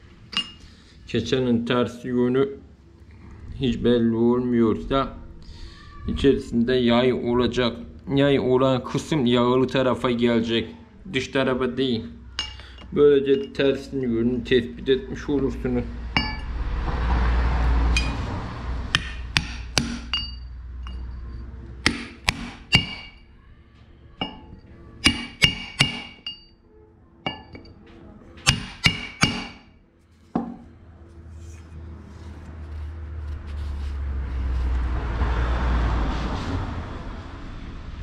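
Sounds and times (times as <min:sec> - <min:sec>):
low rumble: 0:02.8 - 0:09.4, 0:15.0 - 0:19.4, 0:30.9 - 0:38.0
hammer on metal: 0:16.2 - 0:16.5, 0:17.9 - 0:18.3, 0:18.9 - 0:21.2, 0:21.8 - 0:23.3, 0:24.2 - 0:26.5, 0:27.3 - 0:27.7, 0:28.4 - 0:29.7.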